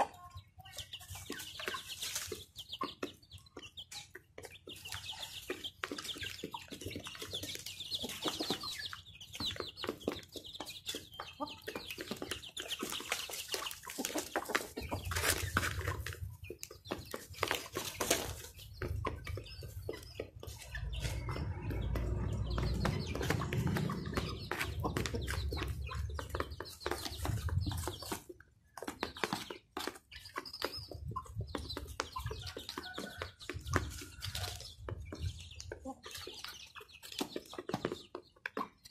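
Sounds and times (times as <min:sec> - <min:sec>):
chickens clucking: 0:00.0 - 0:38.9
beaks pecking on cardboard: 0:00.7 - 0:38.9
low rumble: 0:20.7 - 0:26.4.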